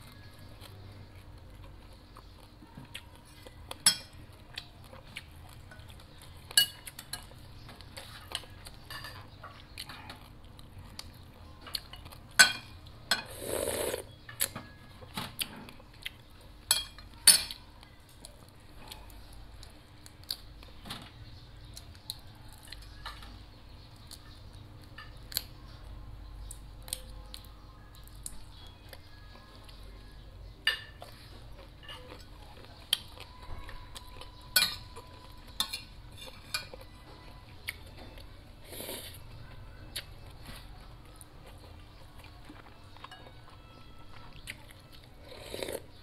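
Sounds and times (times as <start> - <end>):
metal spoon clinking on china: 6.5 - 7.4, 11.9 - 13.4, 16.7 - 17.6, 34.5 - 35.0.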